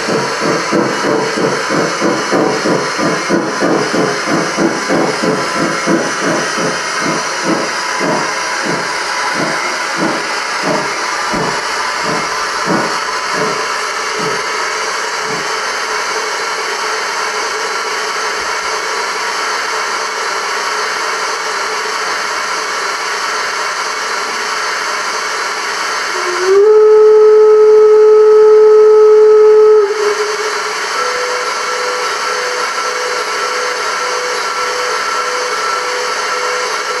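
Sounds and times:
long steam whistle: 0.0 - 19.0, 25.9 - 37.0
steady steam hiss: 0.0 - 19.5
steam locomotive exhaust chuffs: 0.0 - 37.0.

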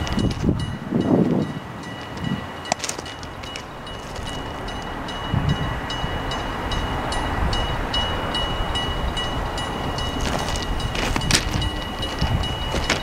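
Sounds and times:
electric train rumble: 0.0 - 13.0
high pulsing ringing tone: 0.0 - 13.0.

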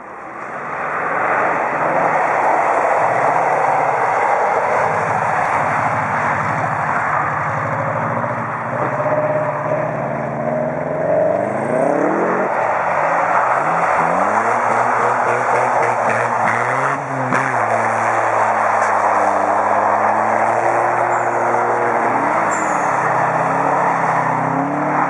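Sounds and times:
car engine revving high: 8.7 - 25.0.

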